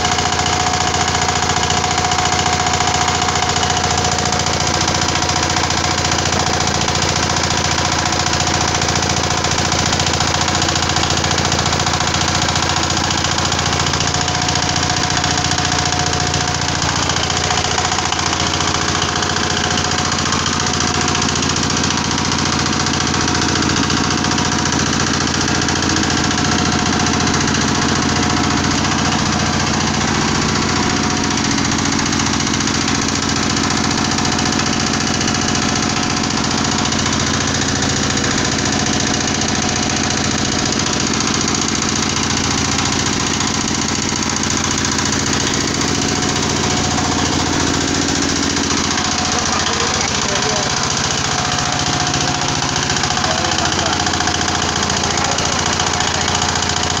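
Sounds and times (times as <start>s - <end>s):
screw press machine running: 0.0s - 57.0s.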